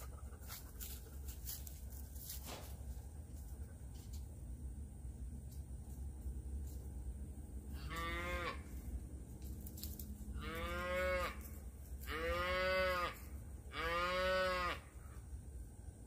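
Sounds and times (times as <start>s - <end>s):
cattle mooing: 7.8s - 8.6s, 10.4s - 11.4s, 12.0s - 14.9s.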